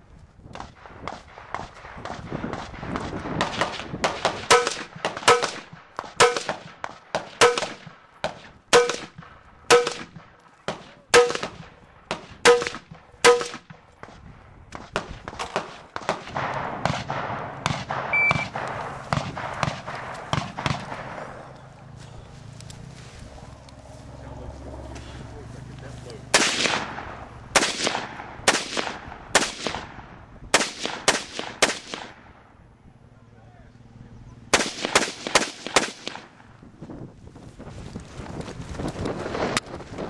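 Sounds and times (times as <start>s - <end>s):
rifle shots: 0.6s - 21.6s, 26.2s - 32.6s, 34.5s - 36.5s
shot timer beep: 18.1s - 18.5s.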